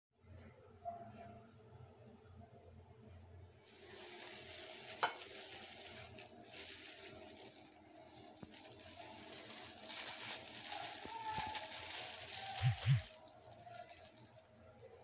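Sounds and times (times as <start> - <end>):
plastic gloves crinkling: 3.6 - 15.0.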